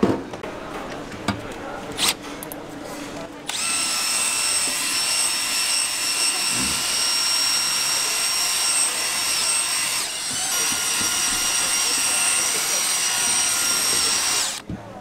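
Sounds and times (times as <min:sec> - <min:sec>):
drill whining: 0:03.5 - 0:14.6.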